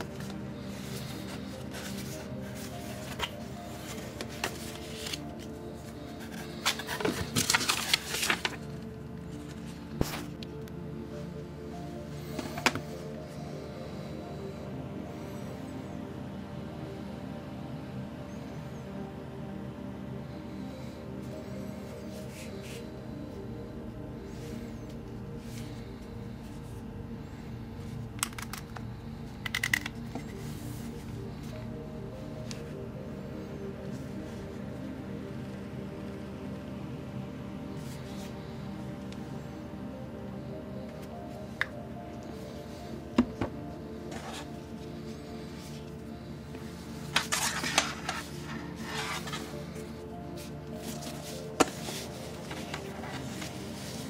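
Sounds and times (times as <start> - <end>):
paper rustling and crackling: 0.0 - 10.5, 47.0 - 54.0
soft background music: 0.0 - 54.0.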